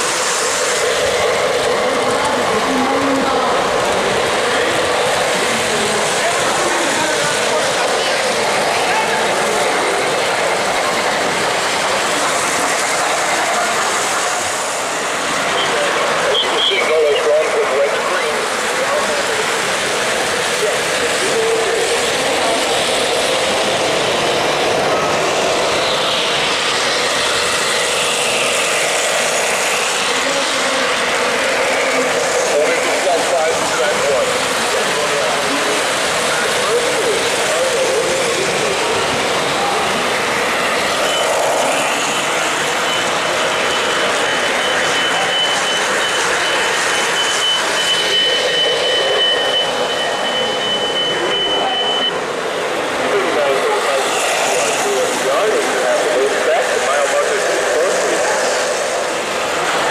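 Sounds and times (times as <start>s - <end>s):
busy hall din: 0.0s - 59.9s
model trains rolling: 0.0s - 59.9s
high whistle-like tone: 41.0s - 41.4s, 42.8s - 52.2s.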